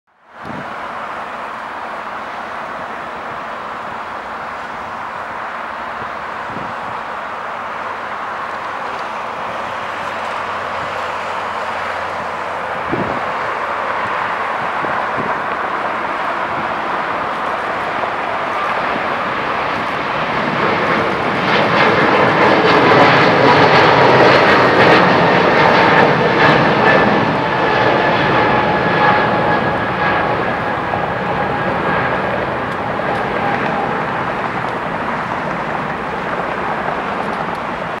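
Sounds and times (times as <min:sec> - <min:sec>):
jet engine whine: 0:00.1 - 0:38.0
jet engines at takeoff: 0:00.1 - 0:38.0.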